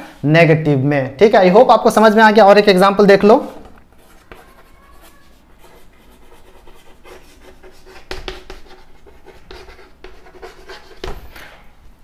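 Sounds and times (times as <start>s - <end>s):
chalk scratching on chalkboard: 3.4s - 11.4s.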